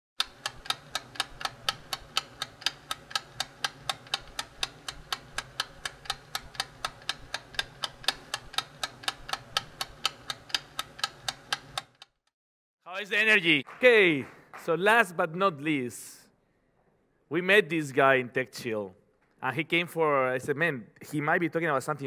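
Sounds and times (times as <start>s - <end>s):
steady ticking: 0.2s - 12.1s.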